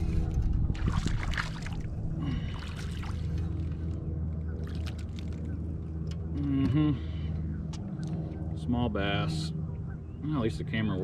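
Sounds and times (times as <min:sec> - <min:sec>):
water splashing and trickling: 0:00.0 - 0:05.8
steady low rumble: 0:00.0 - 0:11.0.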